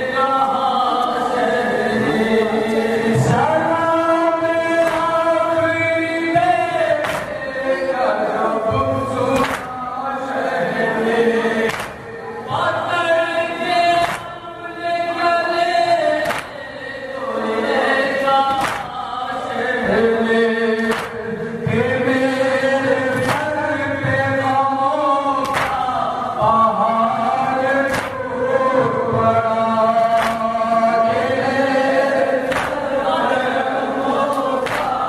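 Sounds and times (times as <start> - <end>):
men chanting call-and-response: 0.0 - 35.0
hands slapping chests: 4.8 - 5.2, 7.0 - 7.4, 9.4 - 9.8, 11.7 - 12.0, 14.0 - 14.3, 16.2 - 16.6, 18.5 - 18.9, 20.9 - 21.2, 23.2 - 23.5, 25.4 - 25.9, 27.9 - 28.2, 30.2 - 30.5, 32.4 - 32.9, 34.3 - 35.0.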